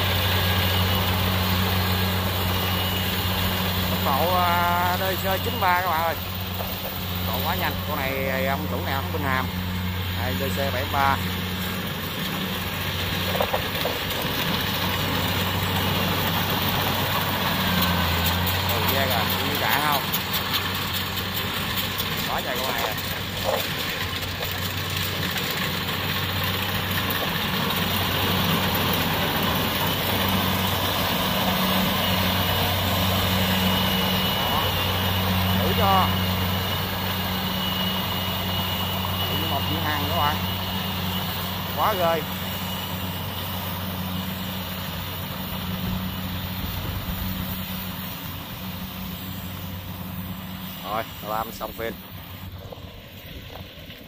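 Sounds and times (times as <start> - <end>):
combine harvester engine droning: 0.0 - 54.0
thin high whine: 28.5 - 53.6.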